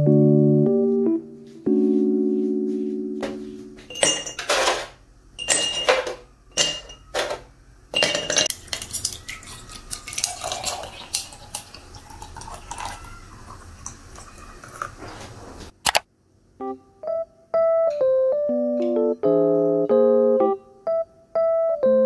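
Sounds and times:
ice cubes clinking into a glass jar: 5.4 - 7.4, 8.0 - 13.0
ice shifting in a jar: 8.0 - 15.0
juice pouring over ice: 8.5 - 15.0.

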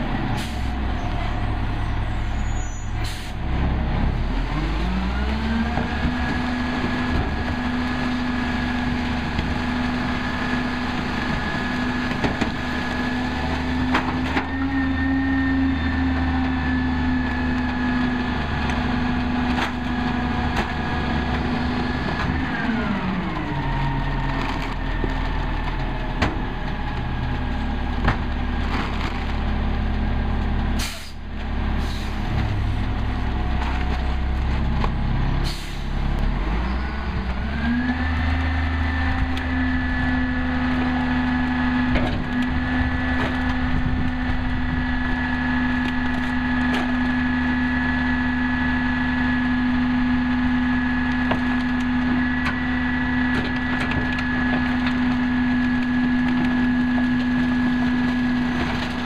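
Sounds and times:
recyclables clattering into hopper: 28.6 - 29.5.

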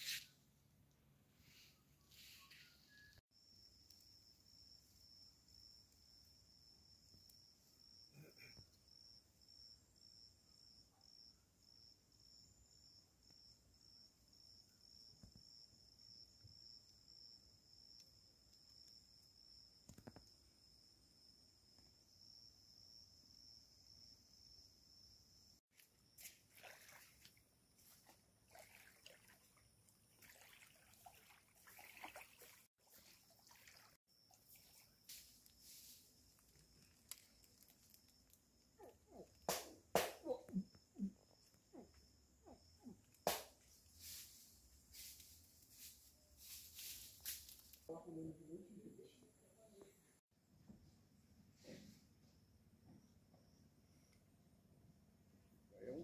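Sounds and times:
faint insect chirping: 0.0 - 31.9, 32.6 - 56.0
rustles and crackles: 34.4 - 39.3, 43.0 - 47.9.

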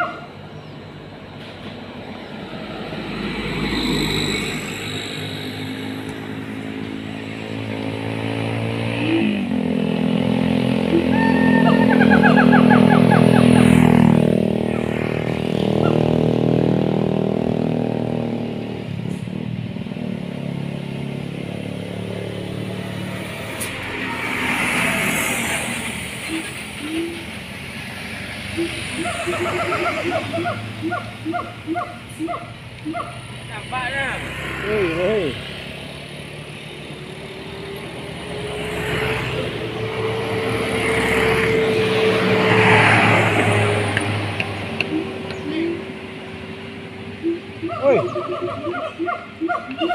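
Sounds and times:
gibbons calling: 10.9 - 14.0, 15.6 - 16.1, 28.5 - 33.2, 44.8 - 45.9, 47.2 - 49.9.

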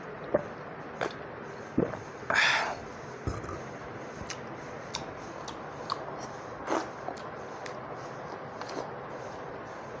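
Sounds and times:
lip smacks and gulps: 0.2 - 2.2, 4.2 - 9.0.

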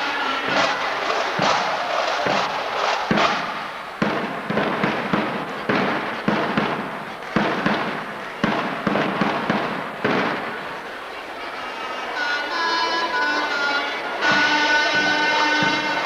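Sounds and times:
drum beats in reverberant hall: 0.2 - 10.9, 14.0 - 16.0.

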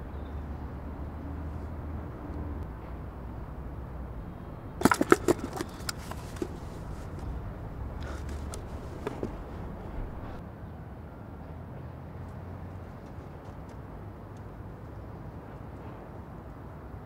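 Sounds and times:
low outdoor rumble: 0.0 - 10.4
wooden box knocks and clicks: 4.8 - 7.3, 8.0 - 9.5.

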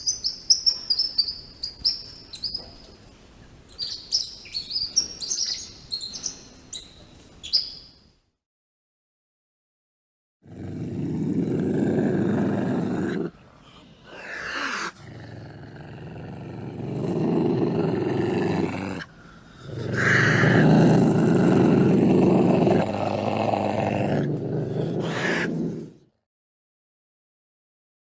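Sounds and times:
wild cat growling: 10.4 - 13.4, 14.1 - 26.2.

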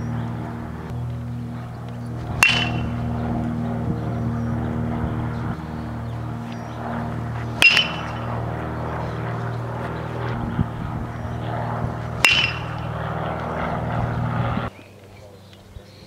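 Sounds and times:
steady low hum: 0.0 - 16.0
metal bat hitting ball: 2.3 - 3.1, 7.6 - 8.3, 12.2 - 12.9.

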